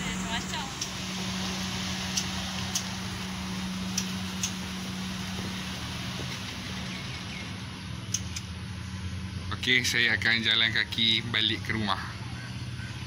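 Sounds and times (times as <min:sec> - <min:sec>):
car driving slowly away: 0:00.0 - 0:13.0
low road ambience hum: 0:00.0 - 0:13.0.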